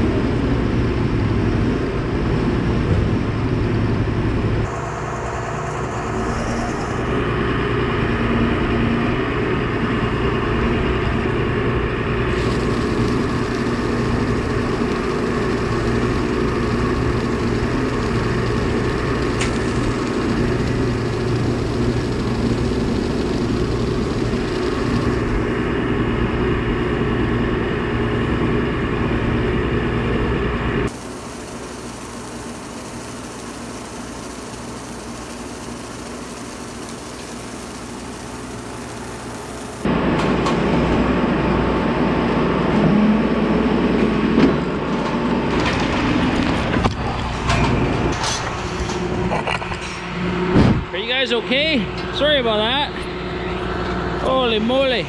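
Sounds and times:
feed mixer auger drone: 0.0 - 55.0.

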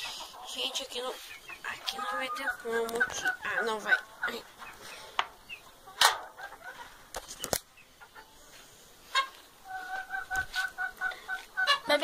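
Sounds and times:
fowl calling: 9.0 - 12.0.

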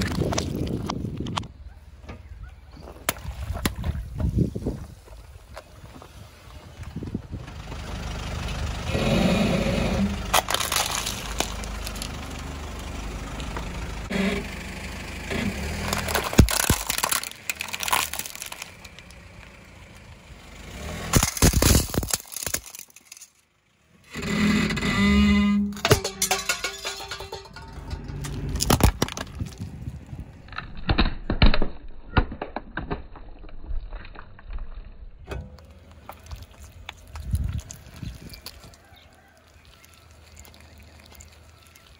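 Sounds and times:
plastic balls cracking under tyre: 0.0 - 1.6, 10.2 - 12.4, 15.7 - 20.1, 21.0 - 23.6, 28.1 - 41.9
car engine idling: 7.4 - 16.3
plastic tub cracking: 10.3 - 12.2, 15.8 - 19.2, 21.1 - 23.3, 28.2 - 29.8.

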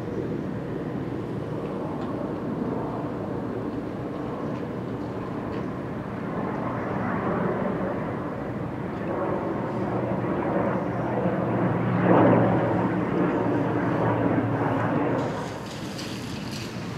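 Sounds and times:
ship engines droning: 14.4 - 16.9.

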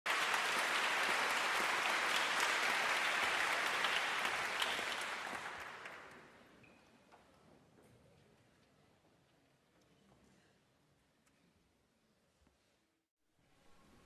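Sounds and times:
audience applauding: 0.1 - 6.3.

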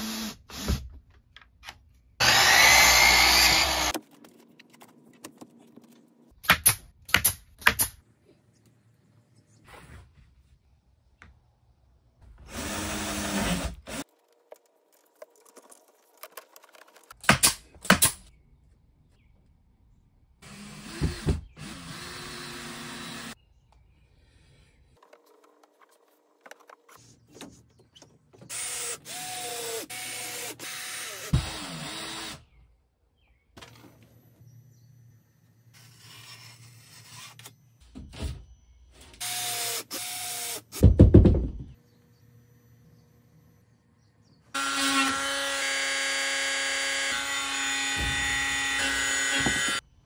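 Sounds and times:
power drill running: 2.2 - 4.0, 20.4 - 23.4.

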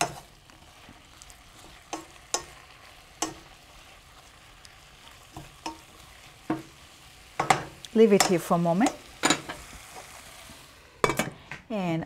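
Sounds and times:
spatula stirring in pan: 0.0 - 10.8
faint sizzle: 0.0 - 12.0
spatula knocking on pan: 7.4 - 8.3.

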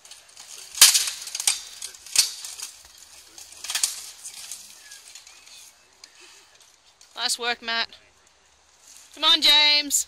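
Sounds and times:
swords clanging on armour: 0.7 - 2.8.

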